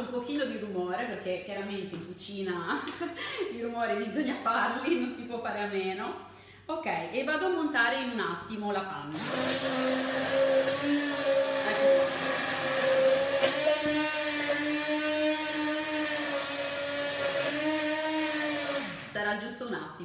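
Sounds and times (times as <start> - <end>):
immersion blender whipping cream: 9.2 - 19.3.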